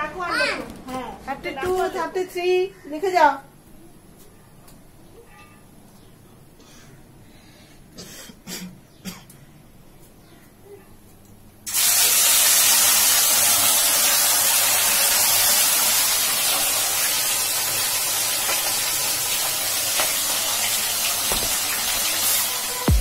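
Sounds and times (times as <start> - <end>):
fish sizzling in hot oil: 11.7 - 22.8.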